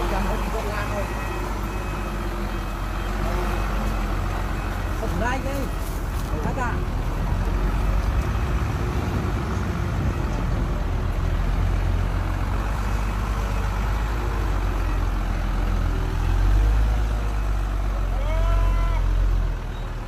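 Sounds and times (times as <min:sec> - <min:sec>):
diesel truck engine rumbling: 0:00.0 - 0:20.0.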